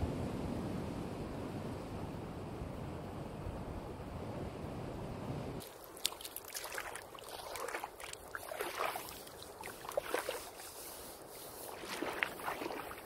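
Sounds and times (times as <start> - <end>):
water splashing and sloshing: 5.6 - 13.0.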